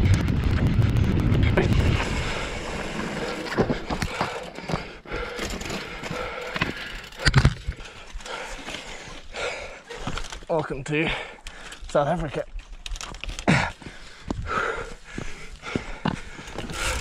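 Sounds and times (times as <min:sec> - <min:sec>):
wind rushing over microphone: 0:00.0 - 0:04.1
mountain bike rolling on dirt: 0:00.0 - 0:17.0
clicks and knocks of bike handling: 0:03.4 - 0:08.9.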